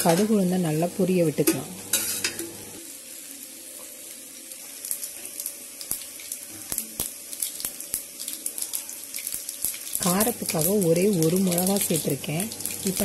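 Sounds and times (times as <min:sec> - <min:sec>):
oil sizzling: 0:00.0 - 0:13.0.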